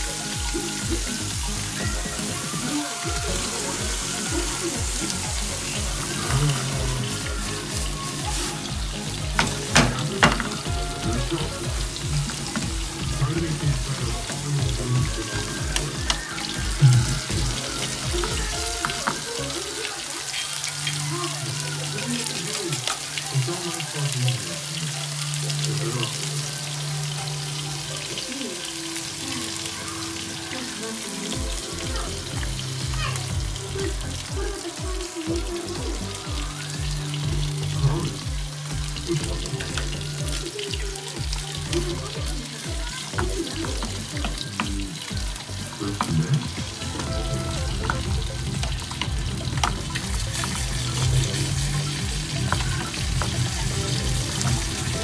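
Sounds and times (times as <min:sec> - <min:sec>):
background music with low beat: 0:00.0 - 0:19.7, 0:31.4 - 0:55.0
vegetables sizzling in oil: 0:00.0 - 0:55.0.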